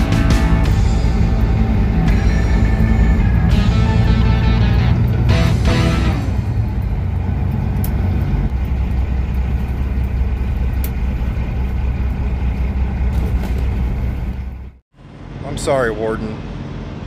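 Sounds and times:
truck diesel engine rumbling: 0.0s - 17.0s.

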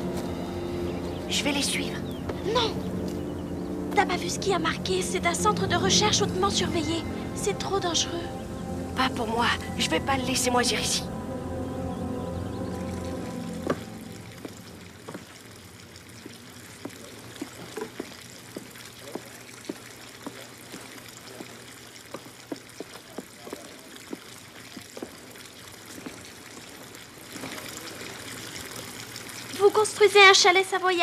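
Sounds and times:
water trickling: 0.0s - 31.0s
small water drips: 12.2s - 31.0s.

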